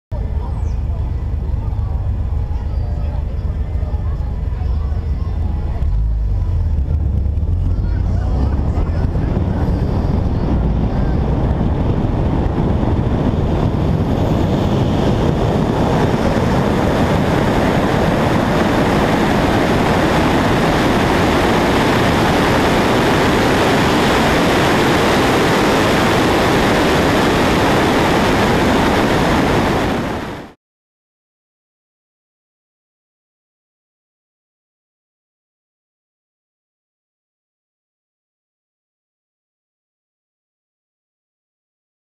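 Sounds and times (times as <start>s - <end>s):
wind and road noise rushing: 0.1s - 30.6s.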